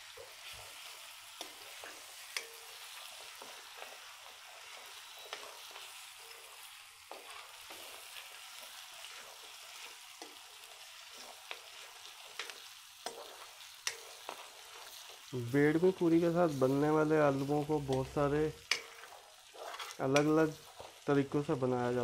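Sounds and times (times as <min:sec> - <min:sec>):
oil sizzling in a pan: 0:00.0 - 0:22.0
ladle scraping and clicking on pan: 0:17.9 - 0:20.9.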